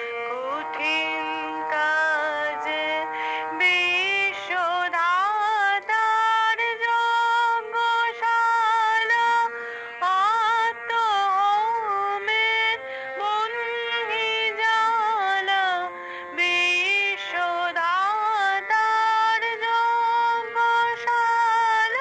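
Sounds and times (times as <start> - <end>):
singer breathing: 3.0 - 3.6, 12.7 - 13.2, 15.9 - 16.4.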